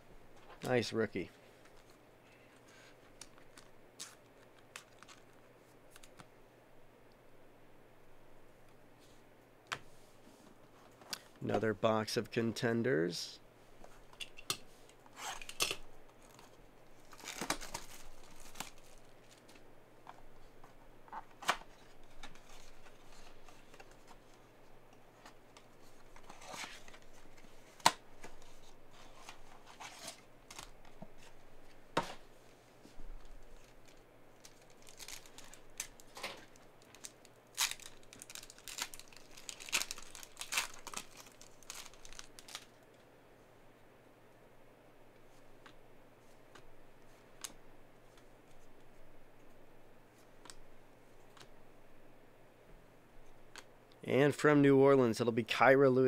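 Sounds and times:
foil wrapper crinkling and tearing: 3.2 - 5.4, 17.0 - 19.5, 33.2 - 42.8.

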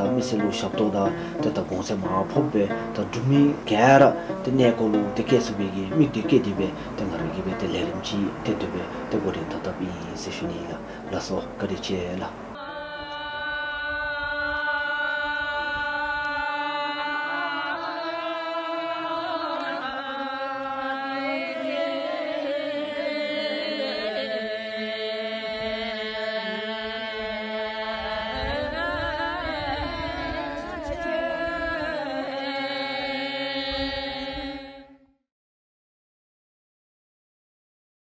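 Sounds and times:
group chanting in unison: 6.5 - 11.1, 12.4 - 34.7.

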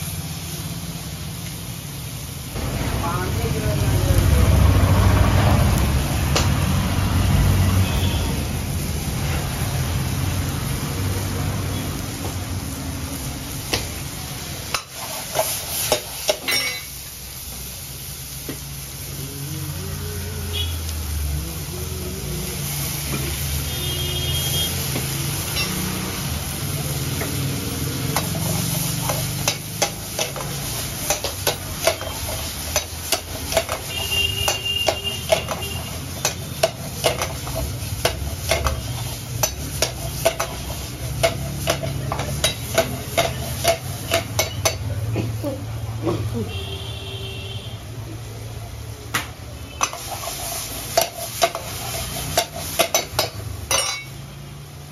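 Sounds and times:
food sizzling in a wok: 0.0 - 54.9
metal ladle clanking on wok: 15.9 - 17.0, 29.0 - 38.8, 39.4 - 44.9, 50.9 - 54.2.

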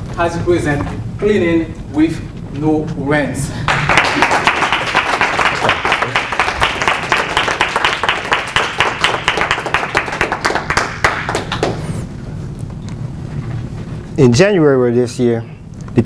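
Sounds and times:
audience clapping: 3.6 - 12.1.

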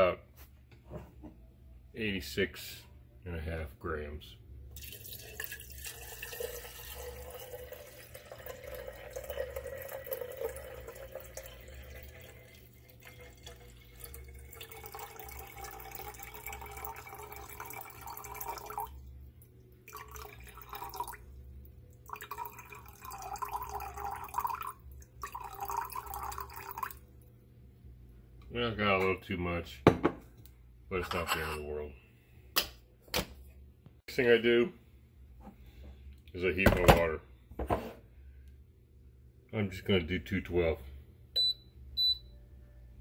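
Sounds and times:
water pouring into kettle: 4.8 - 19.0, 19.8 - 21.3, 22.0 - 27.0.

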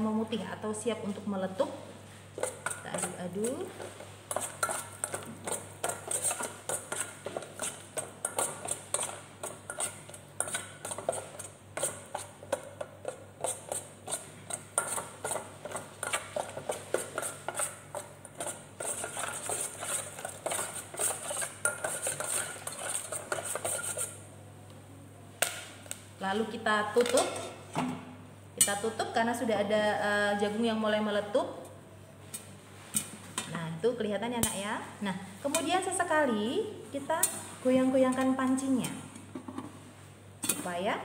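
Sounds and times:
metal spoon scraping a pot: 2.4 - 24.2.

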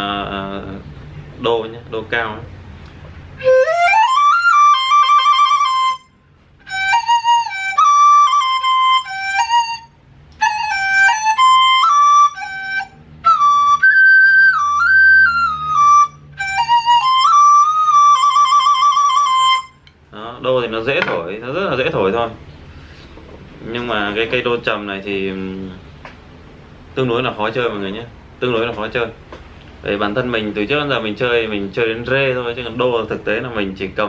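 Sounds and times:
bamboo flute melody: 3.4 - 20.0.

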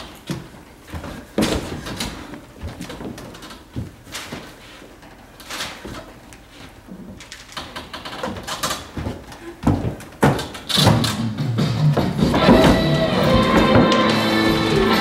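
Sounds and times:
knocks and thumps: 8.2 - 15.0
music: 11.0 - 15.0.

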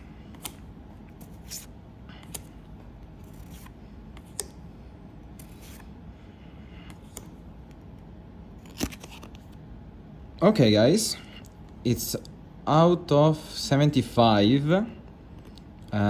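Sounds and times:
low steady hum: 0.0 - 16.0
cards clicking and sliding: 0.2 - 4.6, 5.3 - 5.9, 6.9 - 9.6.

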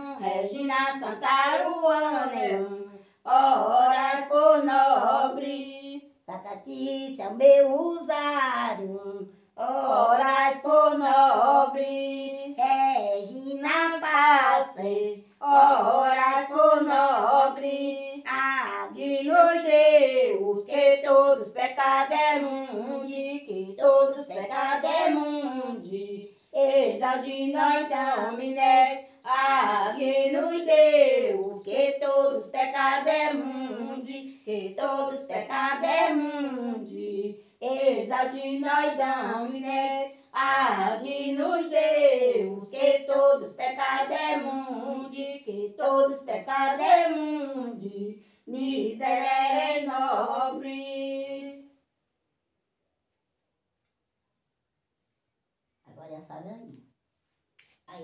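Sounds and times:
woman singing unaccompanied: 0.0 - 51.6.

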